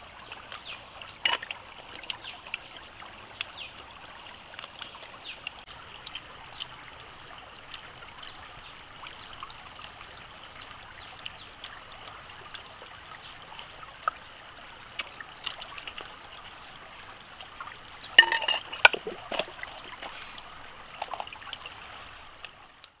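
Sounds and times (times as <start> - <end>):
stream trickling over stones: 0.0 - 23.0.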